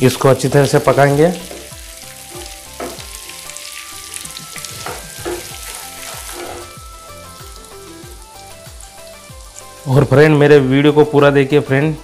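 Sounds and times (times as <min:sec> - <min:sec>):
vegetables sizzling in hot oil: 0:00.0 - 0:10.0
wooden spatula scraping pan: 0:04.7 - 0:06.8.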